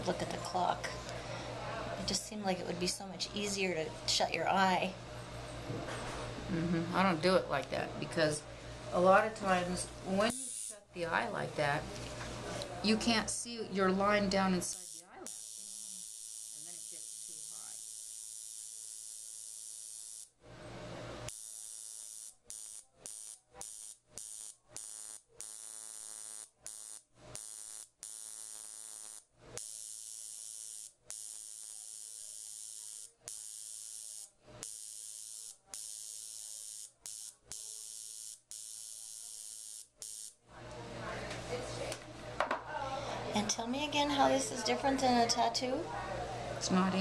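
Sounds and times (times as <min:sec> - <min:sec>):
high-pitched tattoo machine buzzing: 0:10.2 - 0:11.2, 0:13.5 - 0:20.4, 0:21.3 - 0:40.4.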